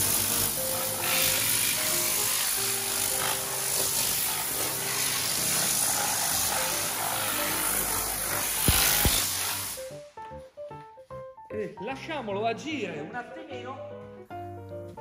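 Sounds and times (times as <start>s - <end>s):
spray gun hissing: 0.0s - 10.0s
background music melodic notes: 0.0s - 15.0s.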